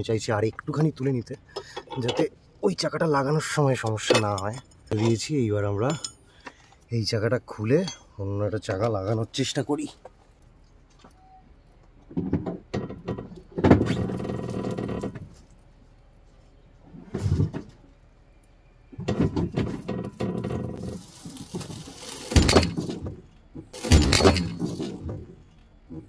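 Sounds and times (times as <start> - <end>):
car creaking and groaning: 11.8 - 15.7, 18.9 - 26.0
car dropping with heavy thuds: 22.2 - 26.0.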